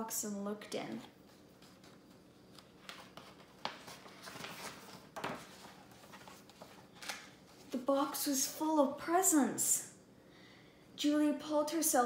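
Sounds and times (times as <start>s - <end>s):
book pages turning: 1.2s - 7.8s.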